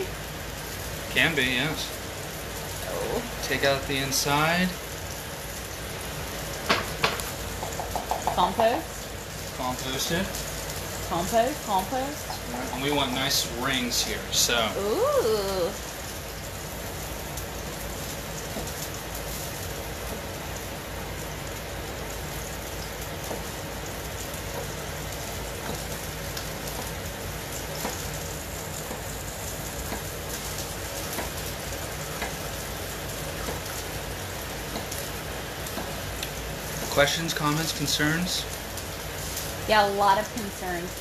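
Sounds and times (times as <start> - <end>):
food sizzling in a pan: 0.0 - 41.0
knife tapping on cutting board: 6.7 - 8.6.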